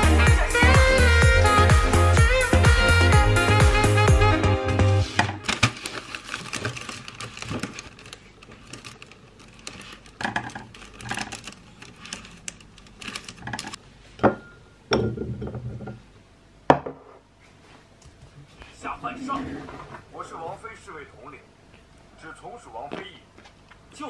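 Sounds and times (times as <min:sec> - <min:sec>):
plastic punnet crinkling: 0:05.4 - 0:13.8.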